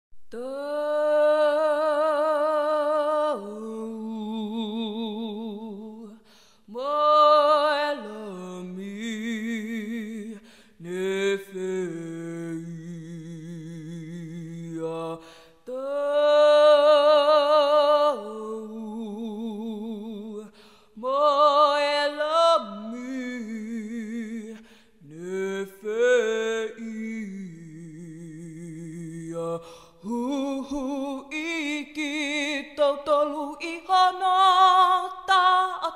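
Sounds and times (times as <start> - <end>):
a cappella hymn singing: 0.3 - 35.9
singer breaths: 6.2 - 6.7, 10.4 - 10.8, 15.2 - 15.7, 20.5 - 21.0, 24.6 - 25.0, 29.6 - 30.0.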